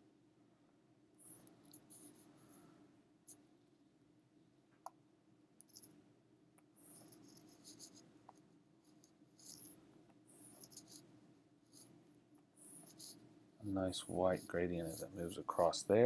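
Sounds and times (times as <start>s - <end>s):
low room hum: 0.0s - 16.0s
stylus scratching drawing tablet: 6.8s - 8.1s, 8.8s - 11.9s, 12.6s - 16.0s.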